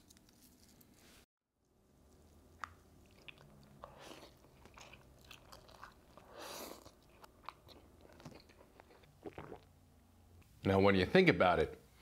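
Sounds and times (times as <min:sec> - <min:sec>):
person chewing: 0:02.1 - 0:09.8.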